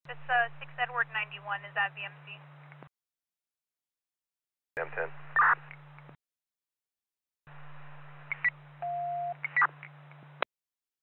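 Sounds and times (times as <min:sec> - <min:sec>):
radio hiss and low hum: 0:04.8 - 0:05.6
steady beep: 0:08.8 - 0:09.4.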